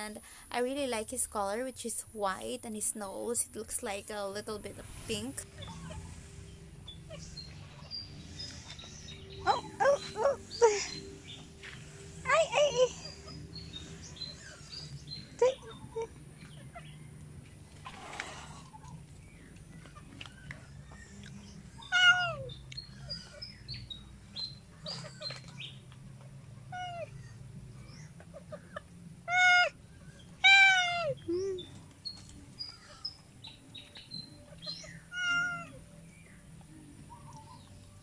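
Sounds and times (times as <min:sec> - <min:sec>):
cat meowing: 0:21.9 - 0:22.5, 0:35.1 - 0:35.8.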